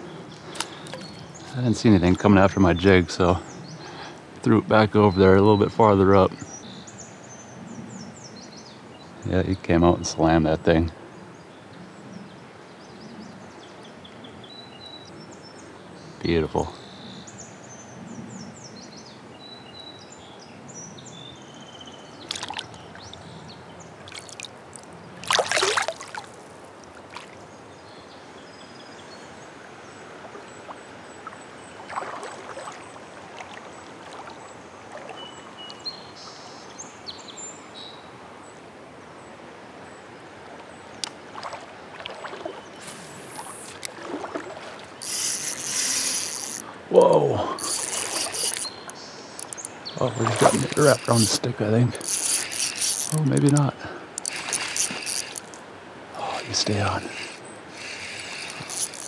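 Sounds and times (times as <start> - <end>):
river water flowing over rocks: 22.1 - 27.6, 29.3 - 35.9, 38.1 - 59.0
water sloshing around legs: 22.2 - 23.2, 24.0 - 27.4, 30.7 - 35.4, 41.0 - 46.8, 47.5 - 55.6
loud splash: 25.2 - 26.3.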